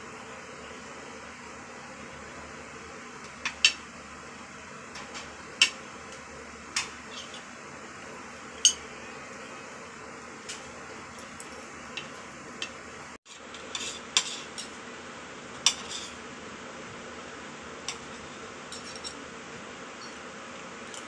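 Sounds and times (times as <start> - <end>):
cutlery clinking on plate: 18.7 - 19.2.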